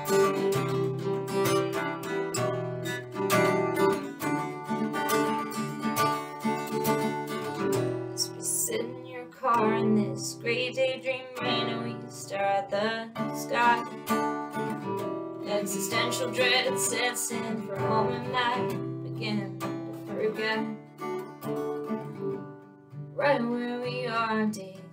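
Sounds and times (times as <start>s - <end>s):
acoustic guitar strumming chords: 0.0s - 24.9s
woman singing: 8.1s - 14.1s, 15.4s - 20.9s, 23.2s - 24.9s.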